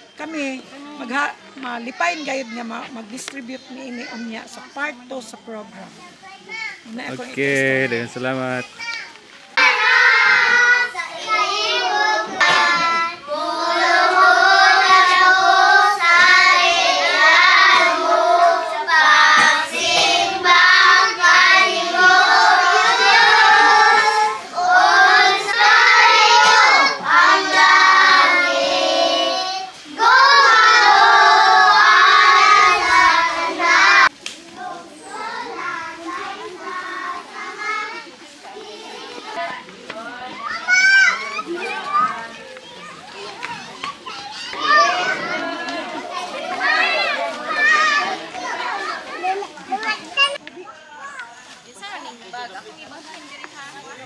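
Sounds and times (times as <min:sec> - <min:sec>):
children singing: 0:09.6 - 0:39.4.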